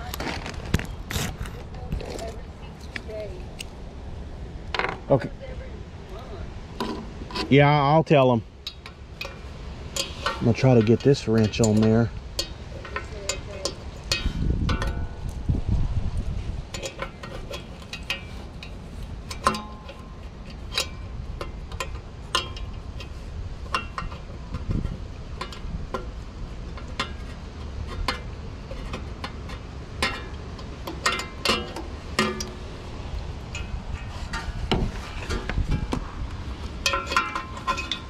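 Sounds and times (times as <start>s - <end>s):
wrench clinking on metal hub: 7.3s - 15.4s, 16.7s - 32.8s, 36.6s - 38.0s.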